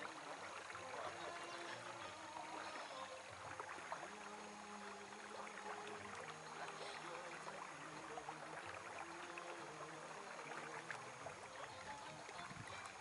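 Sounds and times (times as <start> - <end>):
creek water babbling: 0.0 - 13.0
water trickling ticks: 0.0 - 13.0.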